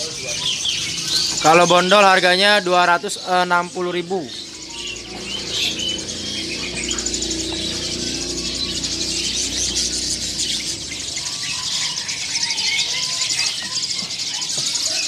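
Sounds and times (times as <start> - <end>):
songbirds chirping and trilling: 0.0 - 15.0
low steady hum: 4.4 - 12.0.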